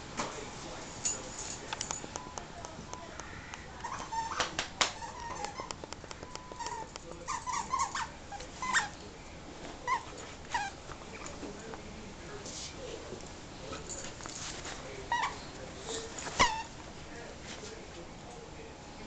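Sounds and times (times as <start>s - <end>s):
dog claws clicking on tile: 3.2s - 8.0s
squeaky toy squeaking: 3.7s - 5.8s, 6.4s - 9.0s, 9.8s - 10.8s, 15.1s - 15.5s, 16.2s - 16.7s.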